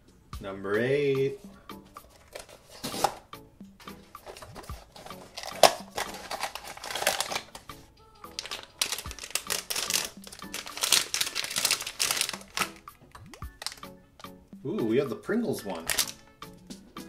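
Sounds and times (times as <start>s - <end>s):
background music: 0.0s - 17.0s
packaging crinkling: 2.0s - 3.2s, 4.2s - 7.7s, 8.3s - 12.9s, 13.5s - 13.9s, 15.8s - 16.2s.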